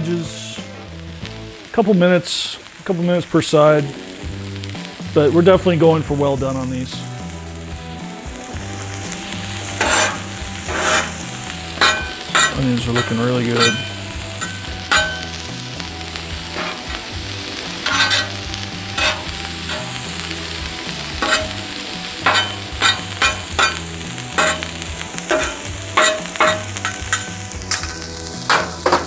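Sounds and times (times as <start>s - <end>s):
food sizzling on griddle: 0.0s - 29.0s
metal spatulas scraping griddle: 9.6s - 15.4s, 16.5s - 20.1s, 21.1s - 29.0s.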